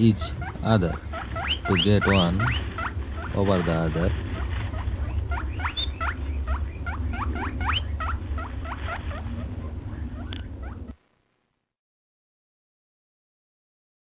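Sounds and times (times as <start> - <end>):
small animals squeaking: 0.0 - 11.0
steady low hum: 0.0 - 11.7.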